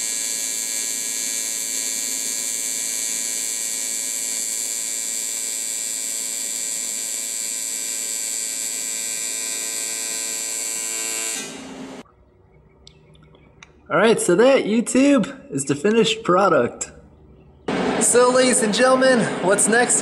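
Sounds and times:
welding arc buzzing: 0.0s - 12.0s, 17.7s - 20.0s.

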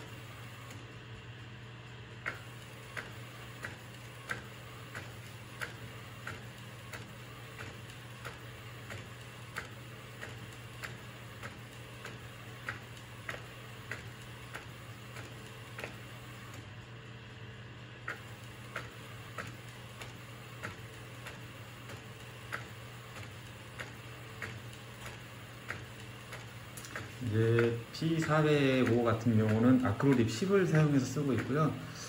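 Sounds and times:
steady low hum: 0.0s - 32.0s
printer carriage clicking: 18.1s - 31.7s.

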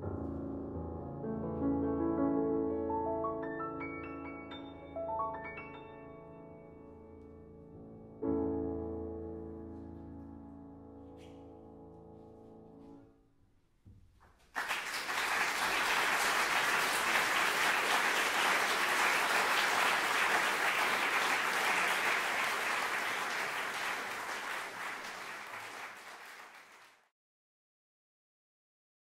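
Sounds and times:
audience applause: 14.5s - 27.0s.

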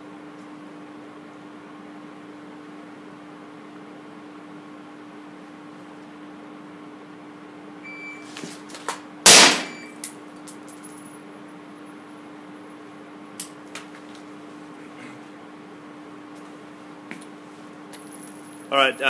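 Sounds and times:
suppressed gunshot: 9.3s - 9.8s
shot timer beep: 9.6s - 10.1s
metallic clicks and clinks: 10.0s - 11.1s.

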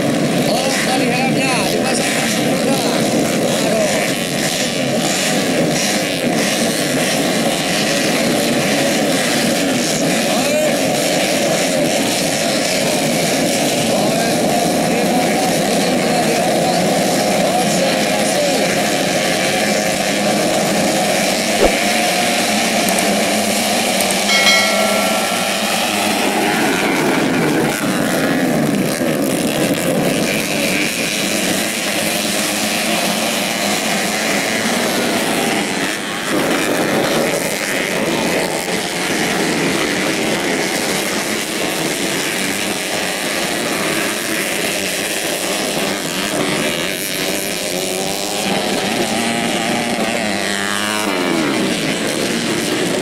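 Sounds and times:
sharp knock: 24.0s - 26.8s
brief high-pitched tone: 24.1s - 27.4s.

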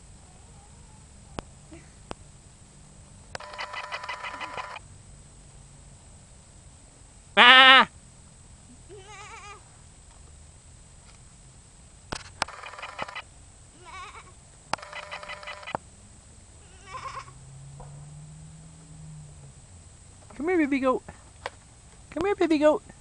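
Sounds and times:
baby goats bleating: 8.9s - 9.6s, 13.8s - 14.4s, 16.6s - 17.4s.

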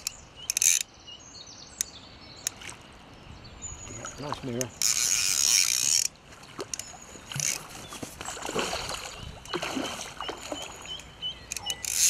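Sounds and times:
fish splashing in water: 6.5s - 11.0s.

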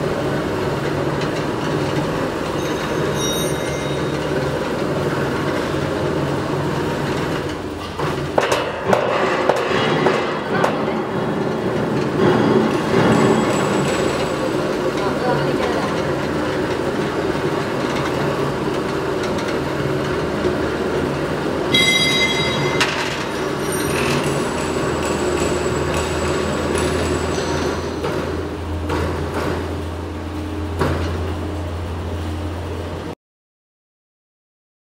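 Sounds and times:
plate bending machine humming: 0.0s - 33.1s
high metallic ring: 2.5s - 4.7s, 21.7s - 26.3s.

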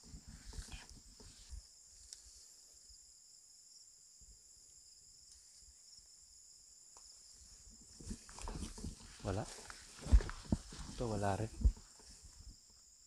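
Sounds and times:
insects trilling: 0.0s - 13.0s
soft handling bumps: 7.9s - 12.6s.

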